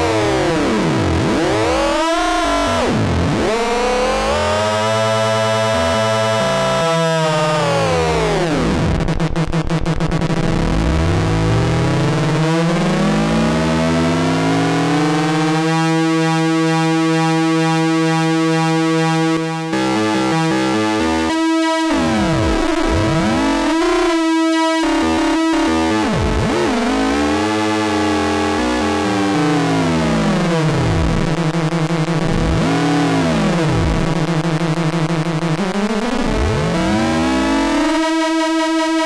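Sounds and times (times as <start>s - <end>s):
synthesizer low sweeping tone: 0.0s - 15.5s, 18.8s - 38.2s.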